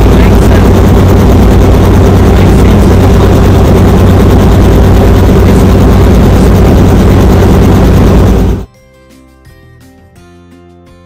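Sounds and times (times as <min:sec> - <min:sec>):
helicopter engine and rotor noise: 0:00.0 - 0:08.7.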